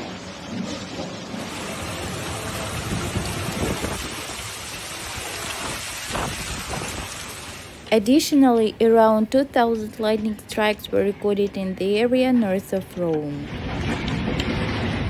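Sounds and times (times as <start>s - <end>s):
heavy rain pouring: 0.0s - 7.9s.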